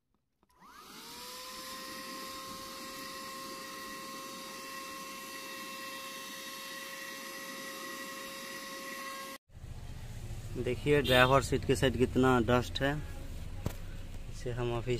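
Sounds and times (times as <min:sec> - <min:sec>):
vacuum cleaner motor whining: 0:00.5 - 0:09.4.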